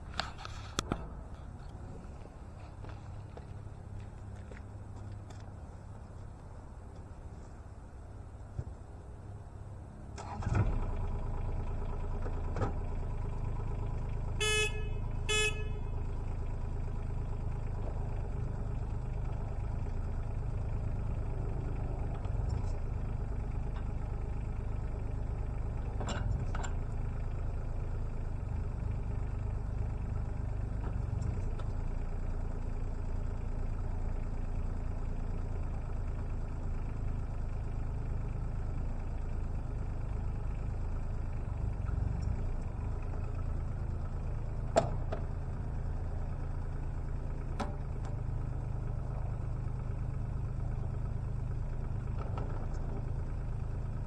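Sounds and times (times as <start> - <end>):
diesel engine starting and running: 0.0 - 54.0
short horn toots: 14.4 - 16.0.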